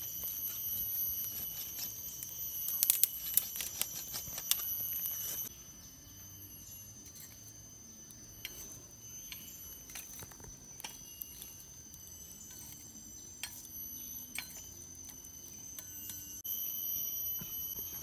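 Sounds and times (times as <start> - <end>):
high-pitched insect drone: 0.0 - 18.0
tongs clicking on charcoal: 0.2 - 5.5, 9.2 - 16.2.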